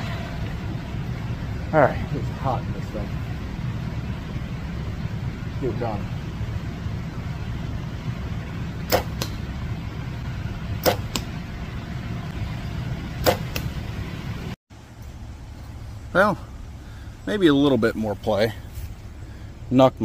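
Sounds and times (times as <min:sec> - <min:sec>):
steady low rumble: 0:00.0 - 0:20.0
arrow striking cardboard target: 0:08.9 - 0:09.4, 0:10.8 - 0:11.3, 0:13.2 - 0:13.8.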